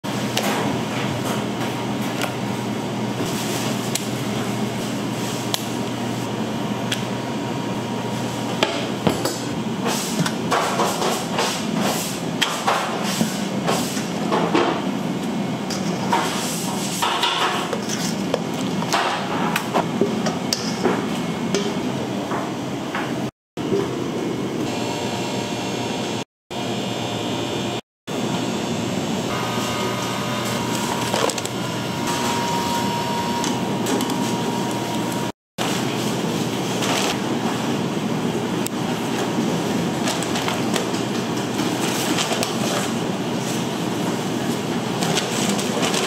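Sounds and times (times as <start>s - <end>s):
machine hum: 23.6s - 46.0s.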